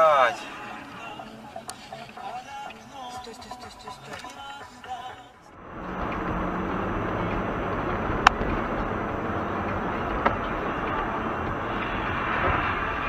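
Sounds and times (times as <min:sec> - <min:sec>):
tyre and engine rumble in car: 0:05.6 - 0:13.0.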